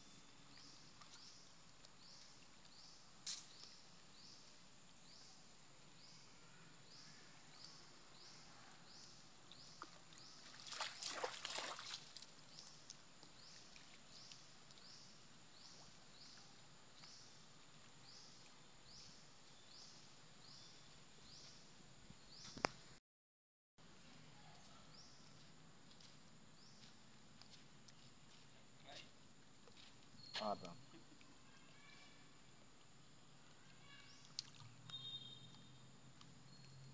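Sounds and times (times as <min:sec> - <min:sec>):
water splashing and sloshing: 0:09.6 - 0:14.8.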